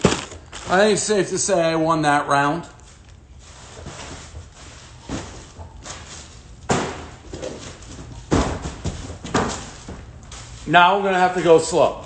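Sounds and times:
heavy thumps: 3.8 - 10.2.

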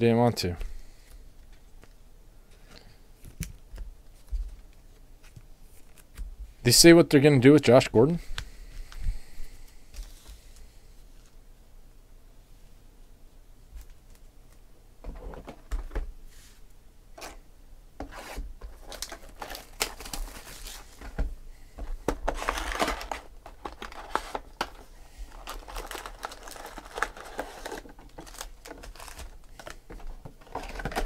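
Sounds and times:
plastic shrink-wrap crinkling: 18.8 - 21.1, 22.2 - 31.0.

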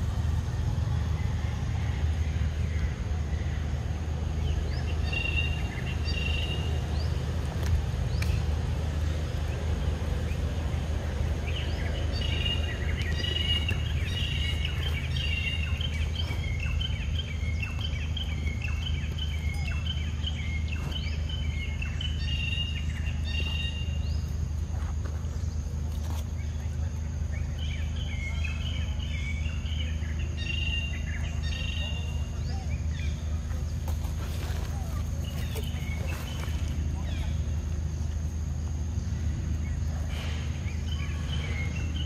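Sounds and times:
bird chirping: 0.0 - 24.4, 25.3 - 38.0, 39.0 - 42.0.

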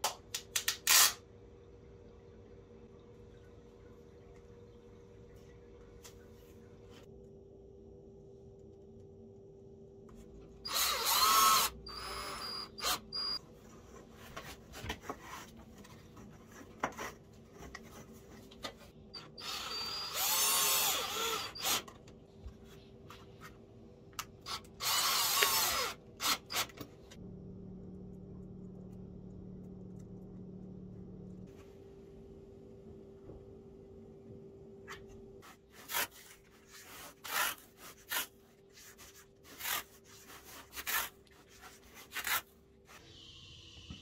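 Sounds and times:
cordless drill driving screws: 10.7 - 13.4, 19.4 - 21.8, 24.5 - 26.7.

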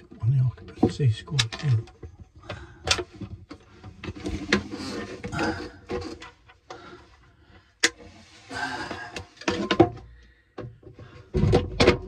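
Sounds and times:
sharp clicks and knocks: 0.0 - 4.7.

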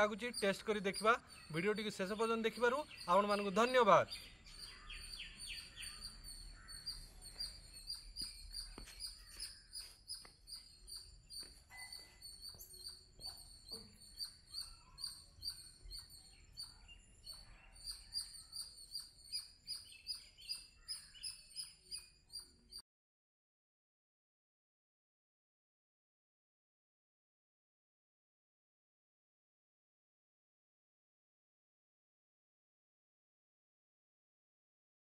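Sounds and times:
birds chirping: 0.0 - 22.8.

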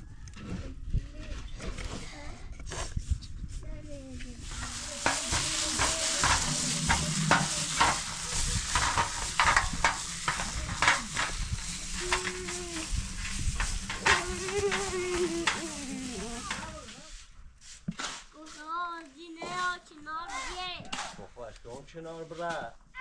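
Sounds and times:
plastic glove crinkling: 4.4 - 17.1.

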